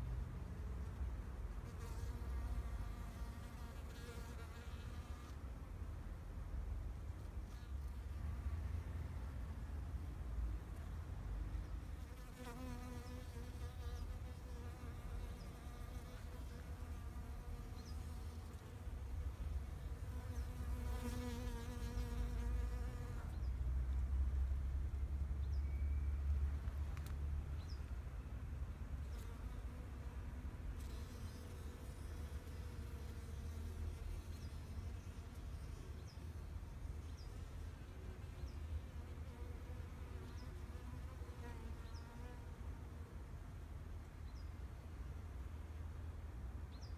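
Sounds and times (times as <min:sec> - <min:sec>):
bee buzzing: 0:12.1 - 0:18.6, 0:19.7 - 0:23.3.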